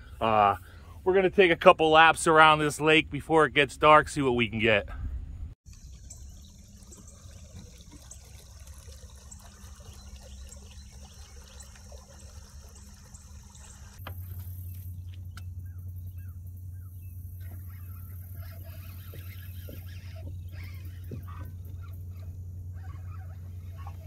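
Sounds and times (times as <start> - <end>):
steady low hum: 0.0 - 24.0
faint water sounds: 5.7 - 15.2, 16.7 - 24.0.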